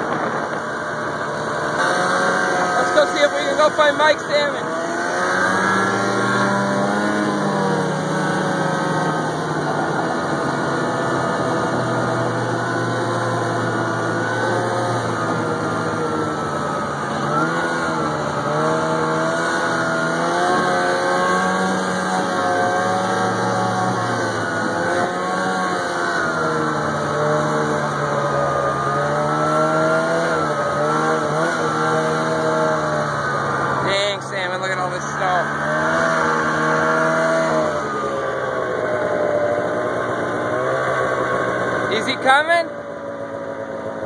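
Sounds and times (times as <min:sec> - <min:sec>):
snowmobile engine running: 0:00.0 - 0:44.0.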